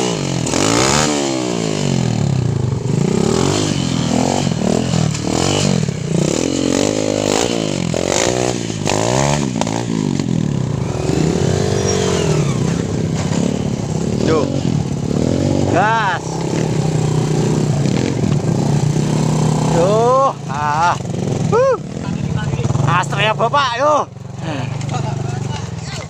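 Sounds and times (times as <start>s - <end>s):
small motorcycle engine revving: 0.0s - 26.0s.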